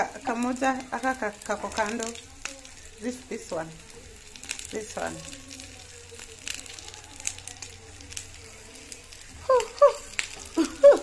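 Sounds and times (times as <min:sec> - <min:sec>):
meat sizzling in a grill pan: 0:00.0 - 0:11.0.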